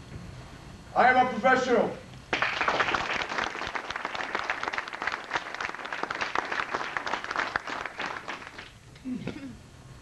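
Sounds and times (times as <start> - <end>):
audience applauding: 2.3 - 8.8.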